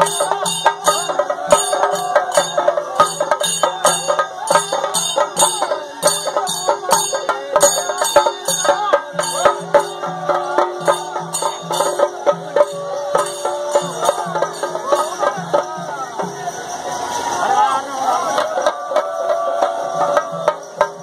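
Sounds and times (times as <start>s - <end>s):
fast beat music: 0.0s - 16.1s.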